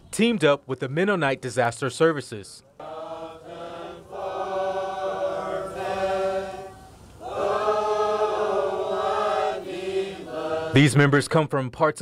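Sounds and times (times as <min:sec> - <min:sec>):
men singing a cappella: 0:02.8 - 0:10.9.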